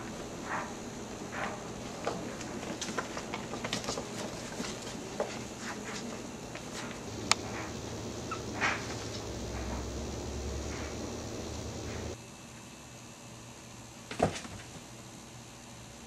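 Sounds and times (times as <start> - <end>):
puppies rustling on bedding: 0.0 - 12.2.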